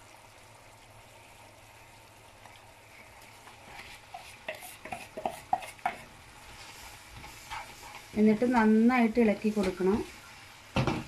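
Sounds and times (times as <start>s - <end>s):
boiling water bubbling: 0.0s - 11.0s
spatula tapping and scraping: 3.7s - 6.2s, 7.2s - 8.8s.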